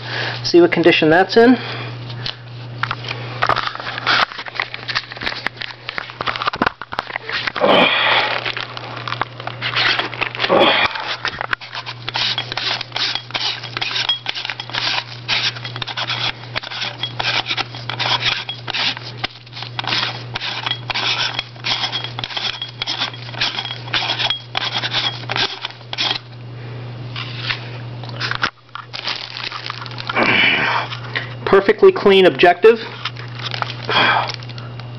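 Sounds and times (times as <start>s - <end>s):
steady low hum: 0.0s - 34.9s
plastic bag crinkling: 3.4s - 24.3s, 28.2s - 30.2s, 32.9s - 34.9s.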